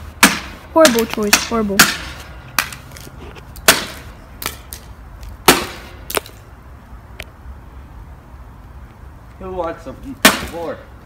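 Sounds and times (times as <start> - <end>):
hammer striking backboard: 0.2 - 2.8, 3.7 - 4.6, 5.4 - 6.2, 10.2 - 10.7.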